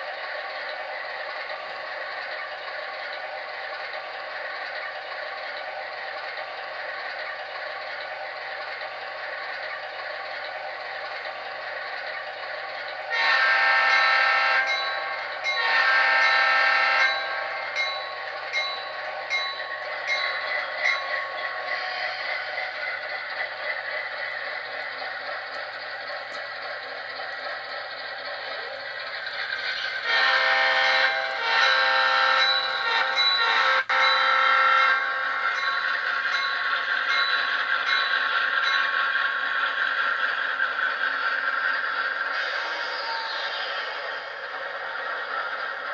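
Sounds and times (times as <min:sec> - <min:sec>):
diesel locomotive idling: 0:00.0 - 0:45.9
locomotive horn blasts: 0:13.1 - 0:14.9, 0:15.5 - 0:17.6, 0:30.0 - 0:35.4.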